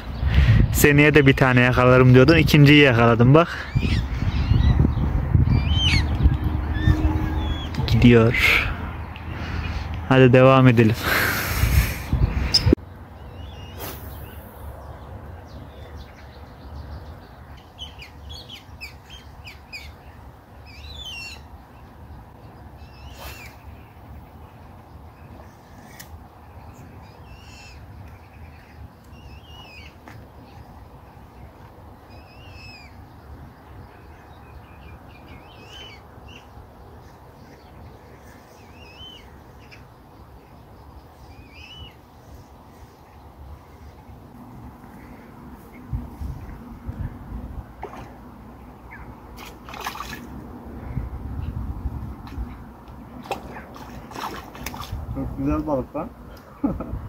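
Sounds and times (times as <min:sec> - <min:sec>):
songbird chirping: 0:00.0 - 0:11.0, 0:12.2 - 0:47.1, 0:47.8 - 0:50.4
brief hiss: 0:13.8 - 0:14.6.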